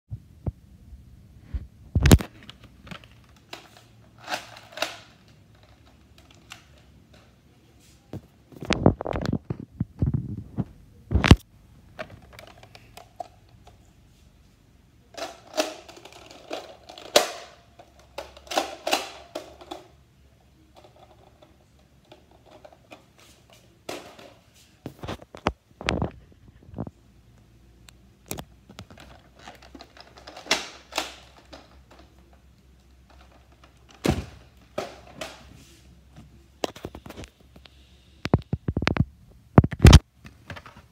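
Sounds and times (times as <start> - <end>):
plastic clicks and rattles: 2.0 - 7.4, 12.0 - 13.8, 15.1 - 20.0, 20.7 - 24.4, 28.2 - 35.5.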